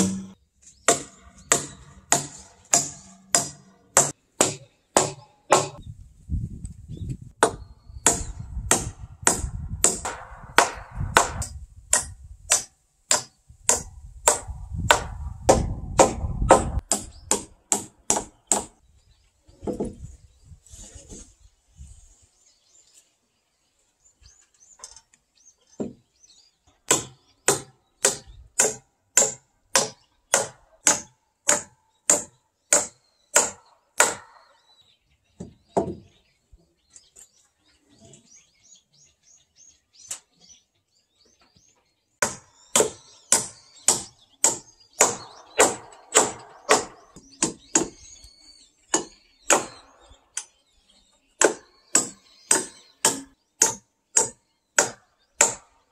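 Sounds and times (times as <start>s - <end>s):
hammer striking log rafters: 0.0s - 5.8s, 7.4s - 18.8s, 25.8s - 26.0s, 26.8s - 34.6s, 35.4s - 36.1s, 42.2s - 48.2s, 48.9s - 50.6s, 51.4s - 55.9s.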